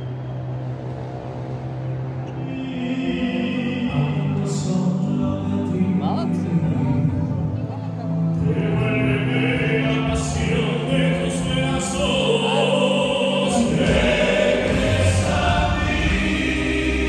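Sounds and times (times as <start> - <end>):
music backing: 0.1 - 17.0
men singing in harmony: 2.4 - 7.3, 8.4 - 17.0
deep bass line: 4.7 - 17.0.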